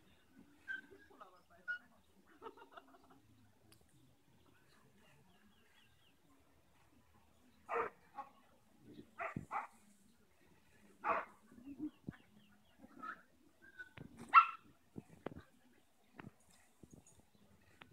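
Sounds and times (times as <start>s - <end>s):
dog barking: 7.7s - 8.3s, 9.2s - 9.8s, 11.0s - 11.3s, 14.3s - 14.6s.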